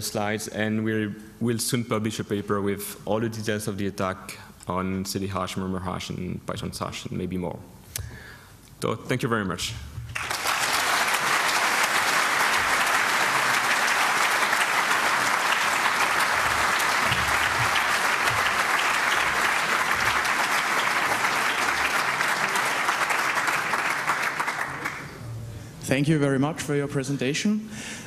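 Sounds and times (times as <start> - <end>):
audience applauding: 10.1 - 25.2.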